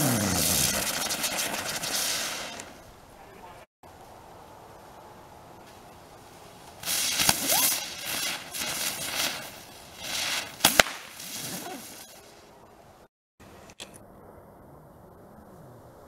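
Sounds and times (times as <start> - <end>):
firework cracks: 0.0 - 2.9, 6.7 - 12.2
spinner firework hissing: 0.0 - 2.9, 6.7 - 12.4
rising firework whistle: 6.8 - 12.2.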